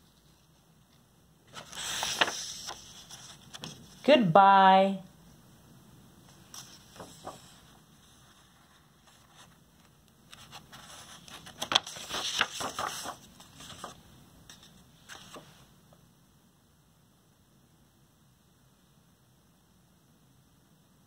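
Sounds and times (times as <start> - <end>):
book pages turning: 1.5 - 4.0, 6.3 - 15.6.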